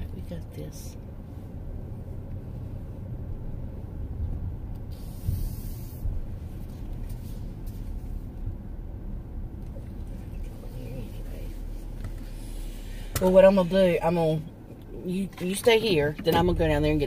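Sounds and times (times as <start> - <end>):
car engine and tyres rumbling: 0.0 - 17.0
brief hiss: 4.9 - 6.2.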